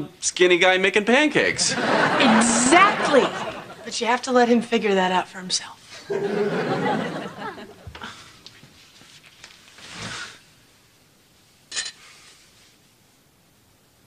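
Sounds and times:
studio audience laughter: 1.5s - 3.9s, 6.1s - 7.9s.

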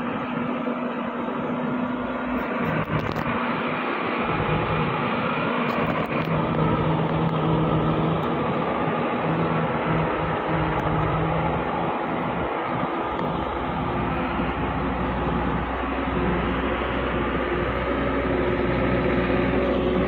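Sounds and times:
truck diesel engine labouring: 0.0s - 20.0s.

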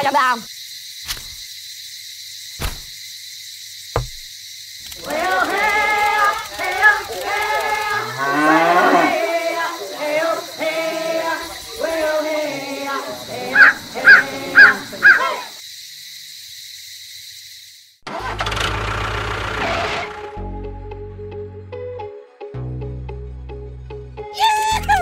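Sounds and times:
sharp clicks: 4.8s - 8.1s
cartoon character voices chattering: 9.2s - 15.5s.

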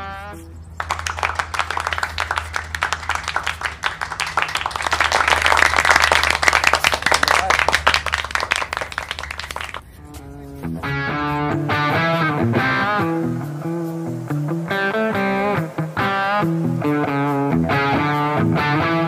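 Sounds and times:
crowd applauding: 0.8s - 9.9s.

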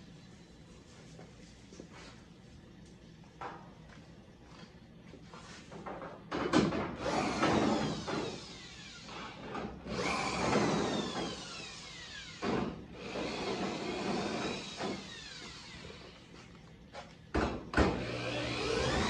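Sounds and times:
electric cutoff tool cutting steel: 17.9s - 19.0s.

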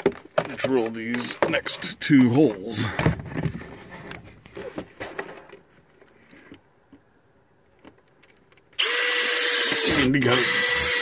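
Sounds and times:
handling knocks and rustles: 0.0s - 7.0s.

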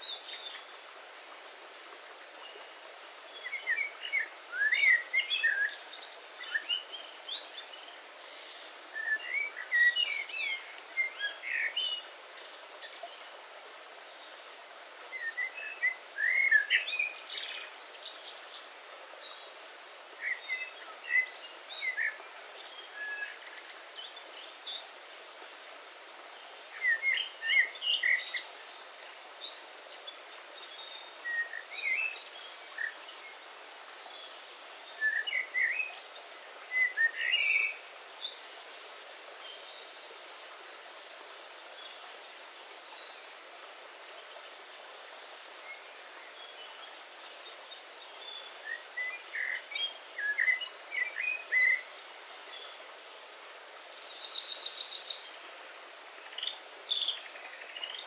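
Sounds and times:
birds singing: 0.0s - 13.4s, 26.3s - 53.2s, 56.2s - 58.0s
stream rushing: 0.0s - 58.0s.

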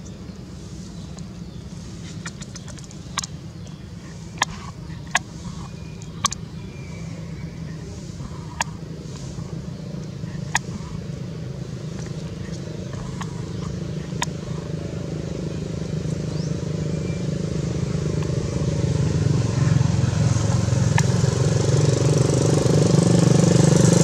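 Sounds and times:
low outdoor rumble: 0.0s - 24.0s
sharp clicks: 2.2s - 3.4s, 4.1s - 6.5s, 11.8s - 14.8s.

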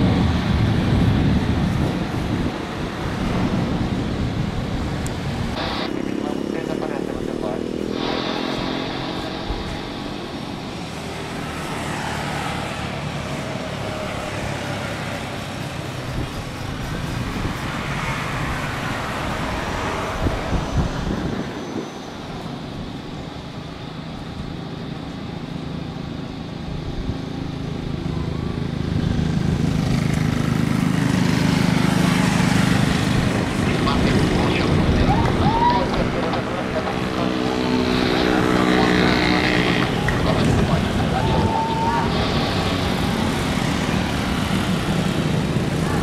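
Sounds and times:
jet engines distant rumble: 0.0s - 46.0s.

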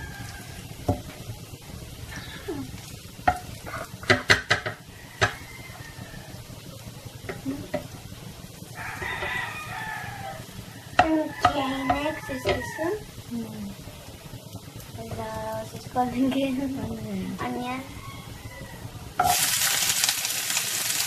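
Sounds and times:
garlic sizzling in oil: 0.0s - 21.0s
spatula knocking against pan: 3.2s - 5.4s, 11.0s - 12.7s.

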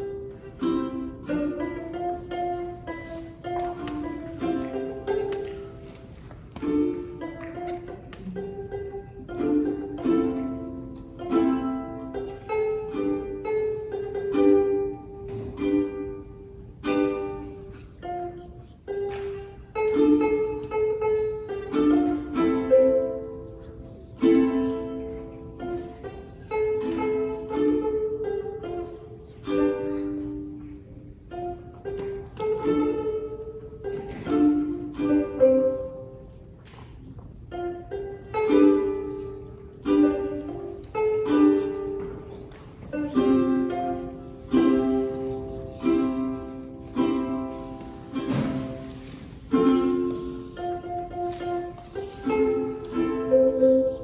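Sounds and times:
ukulele playing: 0.0s - 54.0s.

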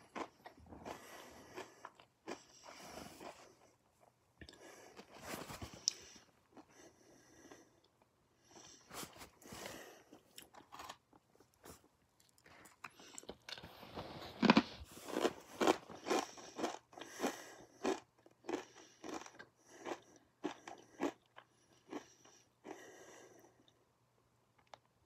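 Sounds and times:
person chewing: 0.0s - 3.7s, 9.4s - 22.9s.

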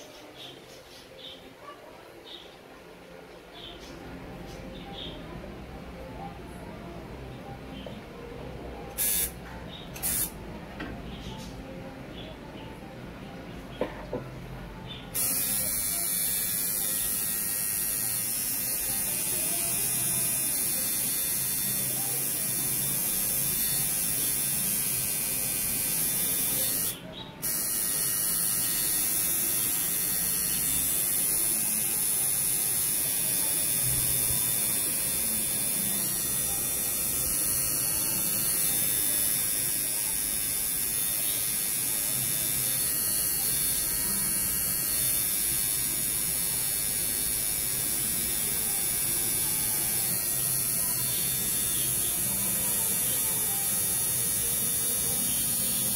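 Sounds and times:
tattoo machine buzzing: 8.9s - 9.4s, 10.0s - 10.4s, 15.1s - 55.9s.

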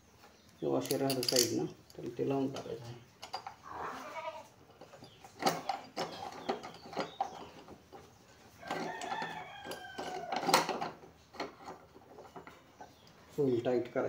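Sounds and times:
rooster crowing: 8.6s - 10.6s.

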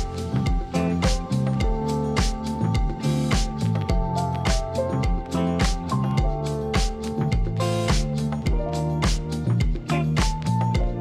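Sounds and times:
bass line: 0.0s - 11.0s
steady drum beat: 0.0s - 11.0s.

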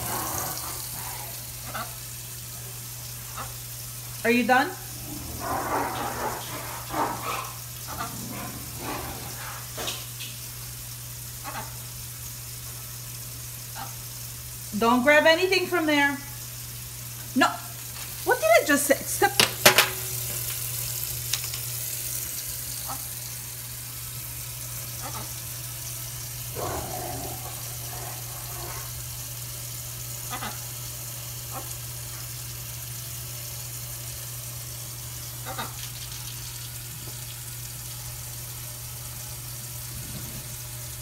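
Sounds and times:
faucet running into metal sink: 18.2s - 23.4s, 33.9s - 41.0s.

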